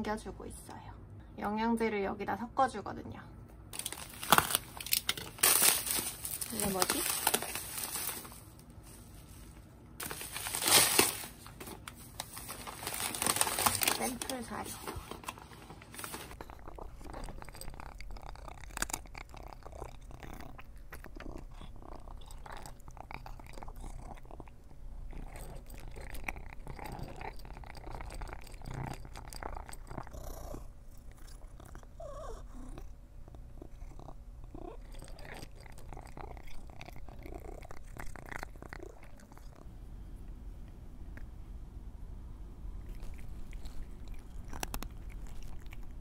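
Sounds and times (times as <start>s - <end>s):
cat crunching dry kibble: 3.7s - 39.6s, 42.7s - 46.0s.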